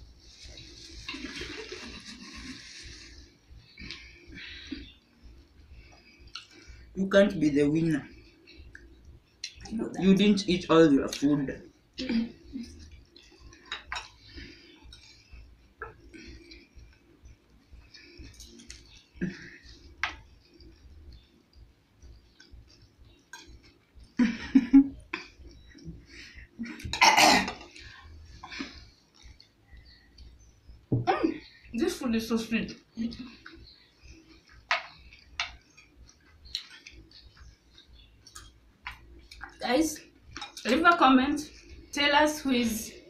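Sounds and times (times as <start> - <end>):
people eating by hand: 0.0 - 43.0
fingers scooping rice on plates: 33.4 - 39.6.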